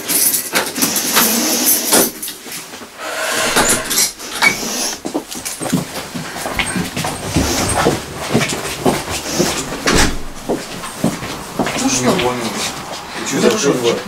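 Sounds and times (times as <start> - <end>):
footsteps and shuffling: 3.4 - 13.2.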